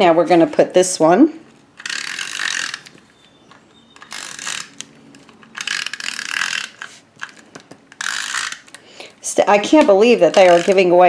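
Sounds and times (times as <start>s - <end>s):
tape runner rasping across paper: 1.8s - 8.7s, 10.2s - 11.0s.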